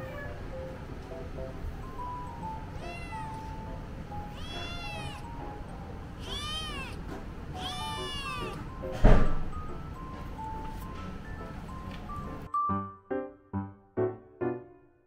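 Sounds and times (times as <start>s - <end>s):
kitten meowing: 2.7s - 3.6s, 4.2s - 5.3s, 6.2s - 8.7s.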